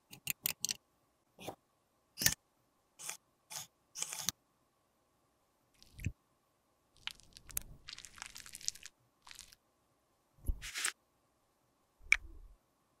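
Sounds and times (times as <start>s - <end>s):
crackly rubbing: 7.0s - 9.6s.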